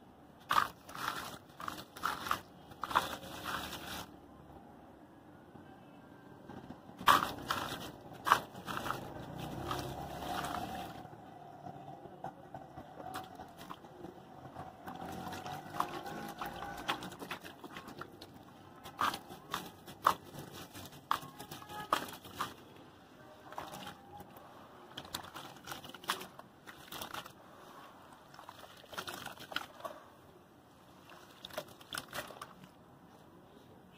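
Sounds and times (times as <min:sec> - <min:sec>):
cement cylinder crunching: 0:00.4 - 0:04.1, 0:07.0 - 0:11.1, 0:13.0 - 0:27.4, 0:28.3 - 0:29.9
hands squeezing wet paste: 0:00.4 - 0:04.1, 0:07.0 - 0:11.0, 0:14.8 - 0:22.6, 0:24.9 - 0:27.4, 0:28.3 - 0:29.9, 0:31.0 - 0:32.6
grains splashing into water: 0:07.0 - 0:11.0, 0:14.8 - 0:22.6, 0:24.9 - 0:27.4, 0:28.3 - 0:29.8.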